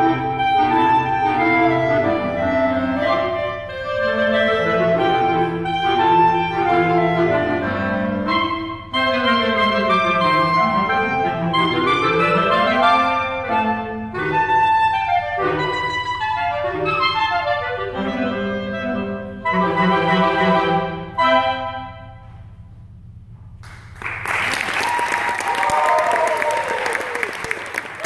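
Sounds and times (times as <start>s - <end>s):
clarinet ensemble playing: 0.0s - 22.4s
audience applause: 23.6s - 28.0s.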